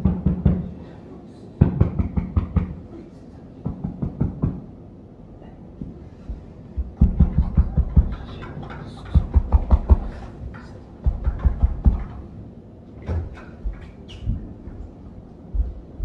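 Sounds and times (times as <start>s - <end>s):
knocking drum beats: 6.7s - 10.3s, 11.0s - 12.3s.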